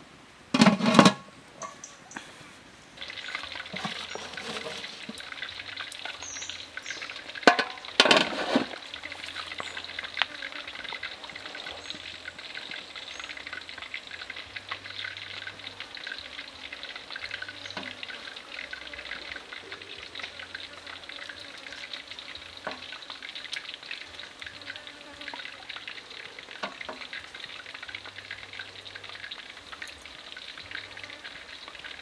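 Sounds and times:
water boiling hiss: 0.0 - 32.0
metal pot lid clanks: 0.6 - 1.8, 7.5 - 8.8.

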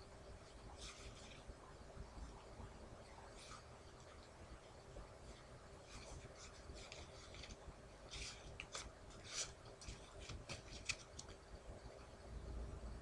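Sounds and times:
playing cards rustling and flicking: 0.7 - 1.6, 3.2 - 4.3, 5.2 - 11.6.

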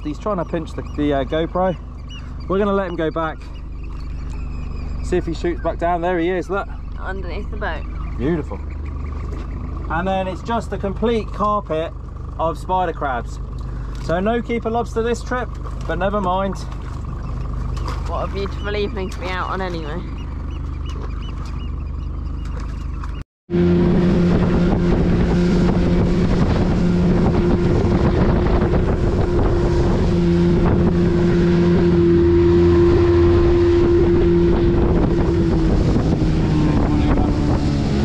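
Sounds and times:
motorboat engine running: 0.0 - 38.0
wind on microphone: 23.5 - 38.0.

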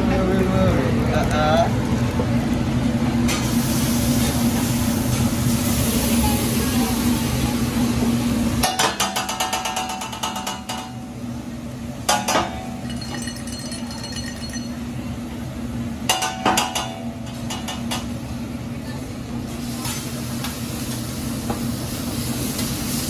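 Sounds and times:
rice frying hiss: 0.3 - 9.8, 19.2 - 23.0
sauce sizzling on hot griddle: 0.7 - 11.2, 19.4 - 23.0
metal spatulas clacking on griddle: 8.6 - 11.0.

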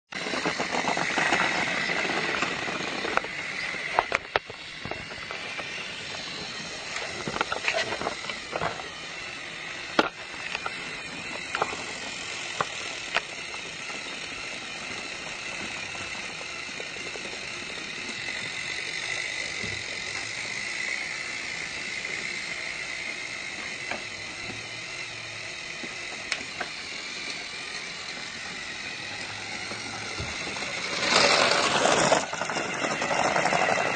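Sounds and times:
toy train gear whirring: 0.1 - 33.9.

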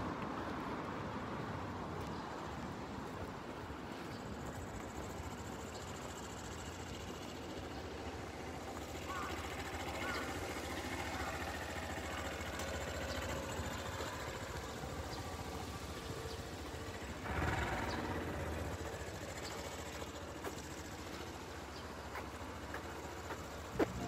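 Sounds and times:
traffic engines running: 0.0 - 24.0
vehicle passing nearby: 0.0 - 24.0.

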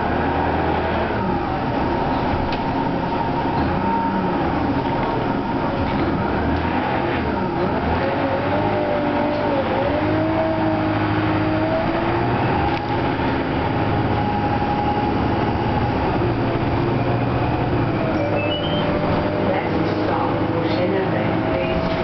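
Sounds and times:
bus engine droning: 0.0 - 22.0
road noise: 0.0 - 22.0
rising whine: 10.6 - 20.2.

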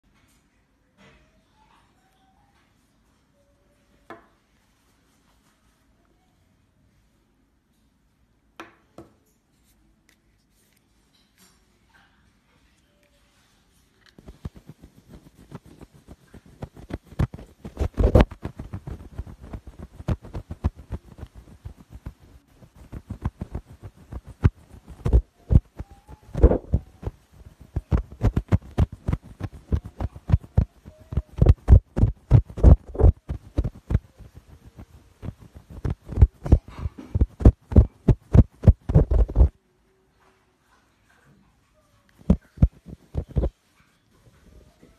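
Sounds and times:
dull thumps and rubbing on cloth: 14.2 - 39.5, 42.2 - 43.6.

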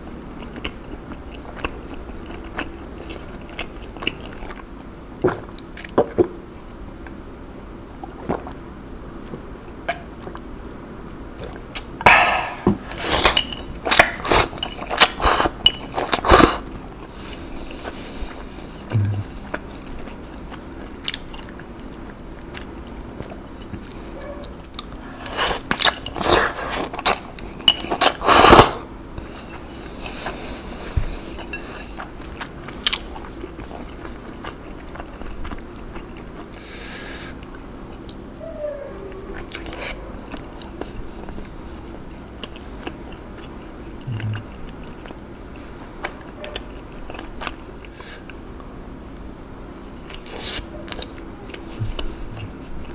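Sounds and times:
person chewing and biting: 0.4 - 4.7, 24.7 - 28.8, 31.1 - 36.6, 39.4 - 49.4, 50.0 - 52.9
mouth clicks and smacks: 44.0 - 44.8.

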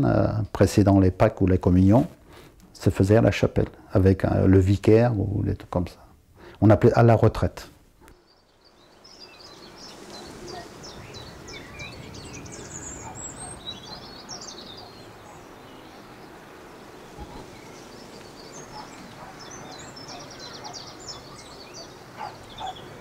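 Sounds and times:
steady outdoor hiss: 0.0 - 23.0
small birds singing and chirping: 8.0 - 23.0
bird trill: 8.2 - 23.0.

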